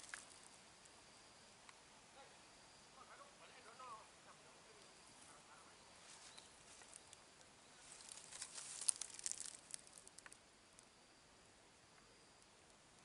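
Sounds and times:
dry leaves and twigs crackling: 0.0 - 0.6, 5.9 - 10.9.

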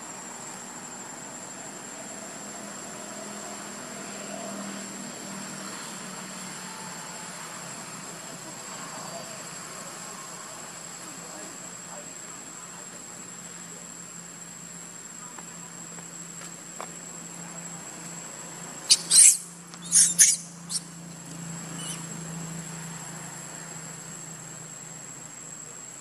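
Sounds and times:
baby monkey shrill squeals: 18.9 - 20.9, 21.7 - 22.1.

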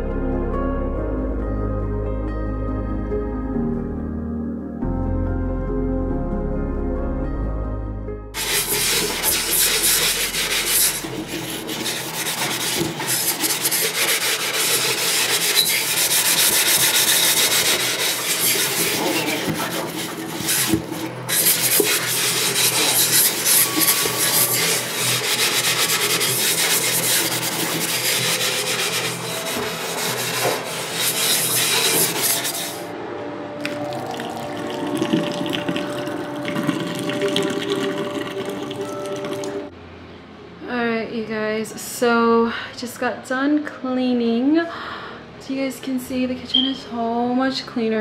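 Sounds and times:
scrubbing on kitchen surface: 8.4 - 32.9.

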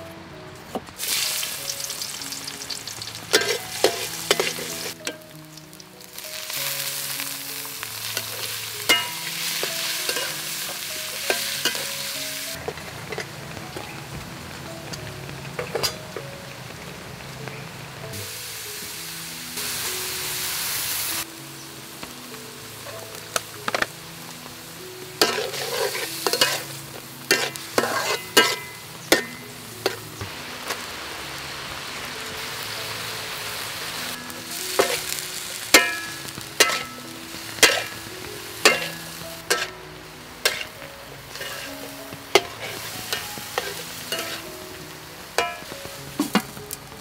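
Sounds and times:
food sizzling: 0.0 - 47.0
metal spatula striking a wok: 3.3 - 5.2, 8.2 - 13.8, 27.3 - 30.0, 35.8 - 38.0, 42.4 - 44.4, 45.4 - 46.5.

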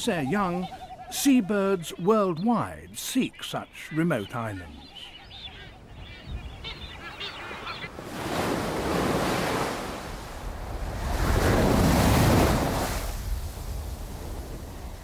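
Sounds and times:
seabird calls: 0.0 - 9.8
surf breaking on rocky shore: 7.9 - 14.9.

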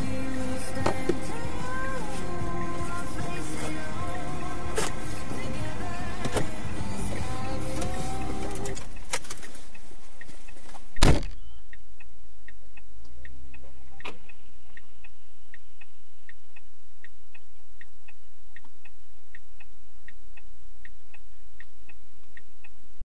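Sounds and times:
turn signal relay clicking: 0.0 - 17.9
loud thump: 11.0 - 11.4.

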